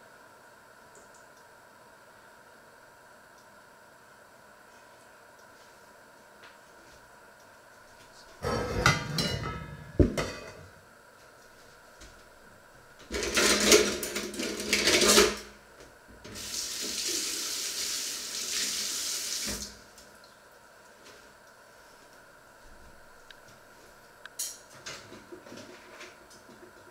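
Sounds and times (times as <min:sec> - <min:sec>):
dishes and pans clattering: 0:08.4 - 0:10.7.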